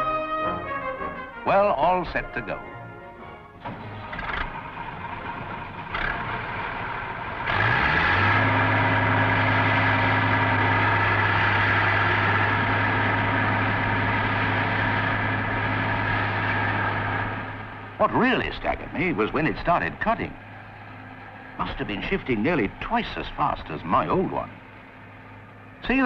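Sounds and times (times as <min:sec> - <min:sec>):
combine harvester diesel engine: 0:00.0 - 0:26.0.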